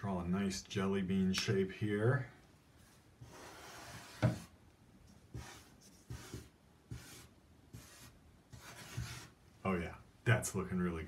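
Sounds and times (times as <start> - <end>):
marker scratching on paper: 2.8 - 4.5, 5.1 - 9.4.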